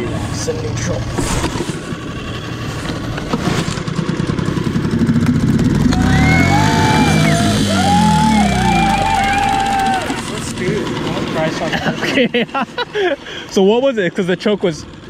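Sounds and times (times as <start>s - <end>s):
outboard motor idling: 4.0s - 12.2s.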